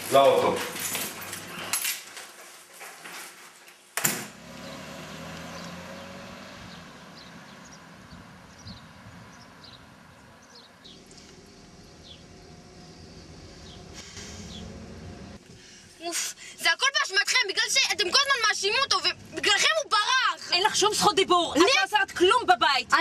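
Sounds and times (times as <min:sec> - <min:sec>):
door opening: 0:04.0 - 0:04.4
traffic passing: 0:04.0 - 0:16.6
birds chirping: 0:04.4 - 0:15.4.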